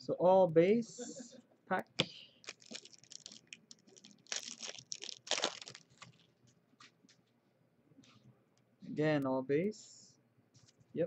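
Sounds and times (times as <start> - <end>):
wrapper crinkling and tearing: 2.4 - 6.3.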